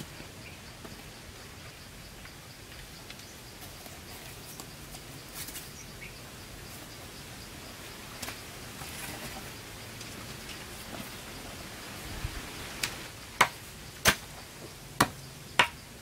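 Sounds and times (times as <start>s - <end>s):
steady rain: 9.5s - 13.9s.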